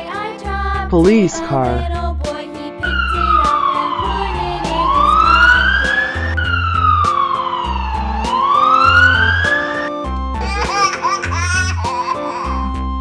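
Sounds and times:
children's music with bass beat: 0:00.4 - 0:13.0
police siren: 0:02.8 - 0:10.1.

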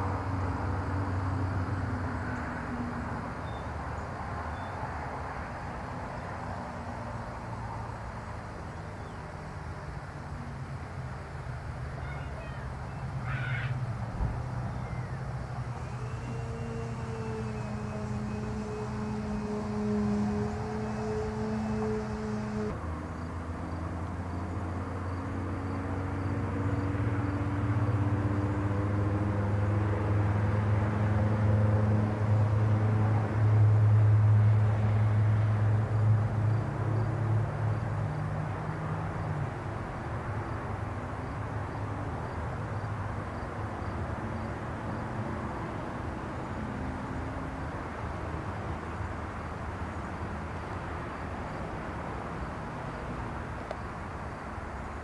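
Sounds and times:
outdoor background noise: 0:00.0 - 0:55.0
motor humming: 0:15.0 - 0:22.8.

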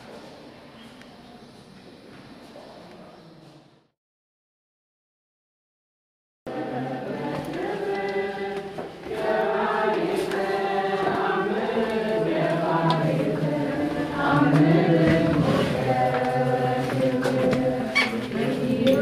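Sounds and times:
choir chanting: 0:06.5 - 0:19.0.

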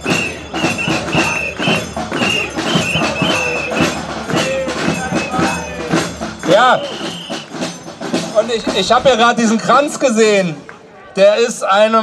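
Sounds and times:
short whistle tones: 0:00.0 - 0:04.0, 0:05.1 - 0:05.6, 0:06.7 - 0:07.6
crowd clapping rhythmically: 0:00.0 - 0:09.0, 0:09.9 - 0:10.9.

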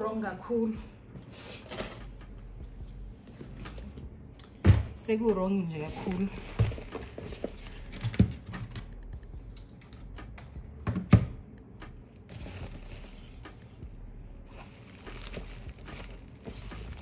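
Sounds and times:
handbag rustling: 0:05.7 - 0:08.8, 0:12.2 - 0:13.9, 0:14.5 - 0:17.0.

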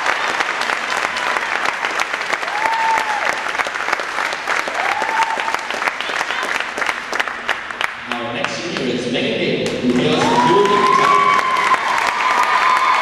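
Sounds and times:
crowd cheering: 0:00.0 - 0:07.1, 0:09.9 - 0:13.0
crowd applauding: 0:00.0 - 0:09.0, 0:09.6 - 0:13.0.

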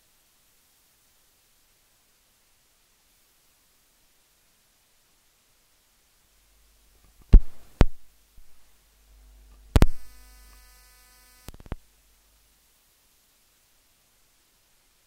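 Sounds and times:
low electrical hum: 0:00.0 - 0:15.0
loud sharp pops: 0:07.1 - 0:08.1
brief buzz: 0:09.1 - 0:11.8.

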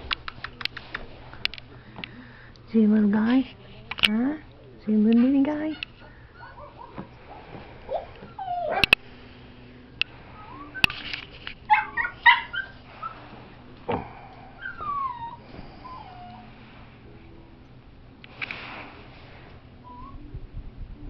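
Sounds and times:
puppy yipping and whining: 0:05.8 - 0:09.0, 0:10.3 - 0:11.0, 0:11.7 - 0:13.2, 0:14.6 - 0:16.5, 0:19.8 - 0:20.3.

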